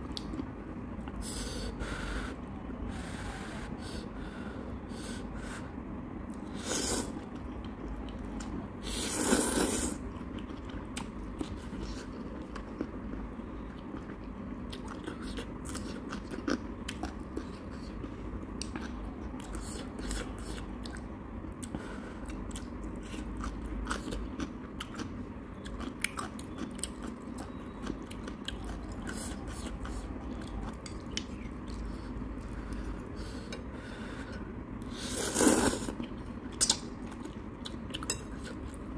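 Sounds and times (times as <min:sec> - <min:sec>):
steady low hum: 0:00.0 - 0:38.9
chewing noodles: 0:06.5 - 0:33.6.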